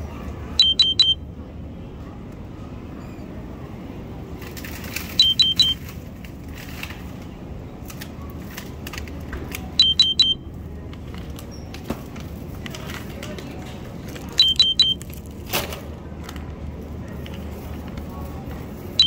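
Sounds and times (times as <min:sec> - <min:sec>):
supermarket background noise: 0:00.0 - 0:19.0
short high electronic beeps: 0:00.6 - 0:01.2, 0:05.2 - 0:05.8, 0:09.8 - 0:10.4, 0:14.4 - 0:15.0.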